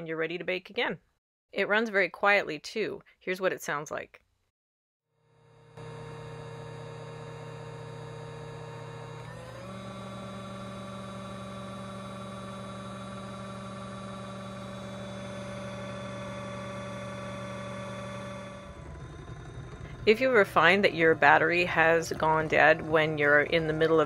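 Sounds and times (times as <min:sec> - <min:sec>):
hand mixer motor whine: 0:05.2 - 0:24.0.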